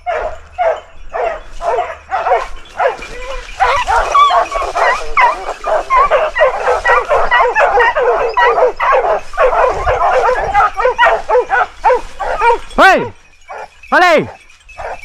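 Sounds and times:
dogs barking rapidly: 0:00.0 - 0:15.0.

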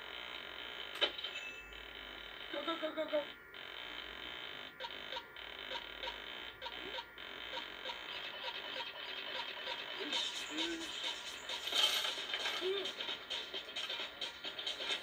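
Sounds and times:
rapid electronic beeping: 0:03.6 - 0:15.0.

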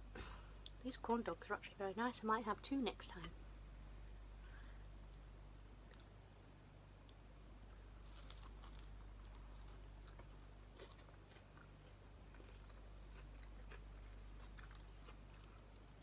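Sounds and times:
low hum: 0:00.0 - 0:10.8
soft crunchy clicks: 0:04.4 - 0:06.2
biting and chewing: 0:08.0 - 0:16.0.

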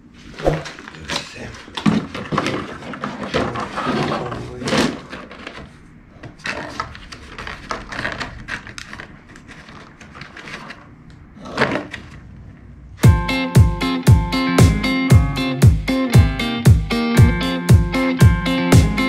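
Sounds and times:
cardboard rustling: 0:00.2 - 0:10.9
plastic scraping: 0:00.2 - 0:12.5
plastic parts knocking and clattering: 0:00.6 - 0:10.8.

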